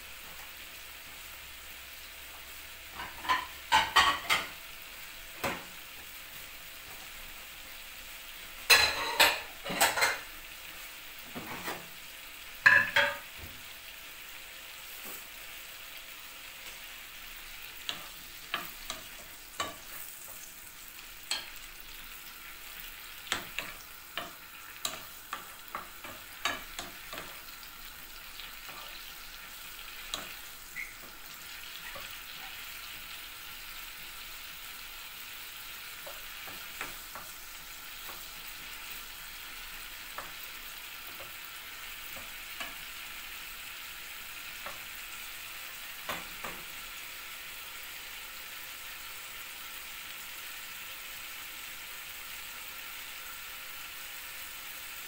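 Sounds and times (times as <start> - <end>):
shrimp sizzling in a pan: 0.0 - 55.0.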